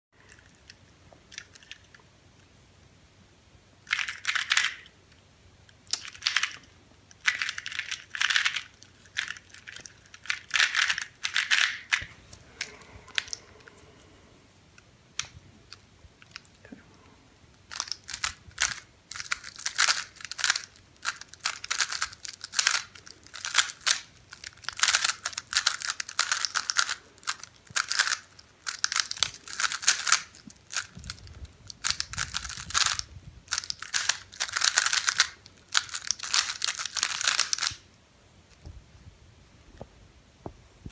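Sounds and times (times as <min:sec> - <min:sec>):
plastic puzzle cube clicking: 0:03.9 - 0:04.9, 0:05.9 - 0:13.7, 0:17.7 - 0:37.8.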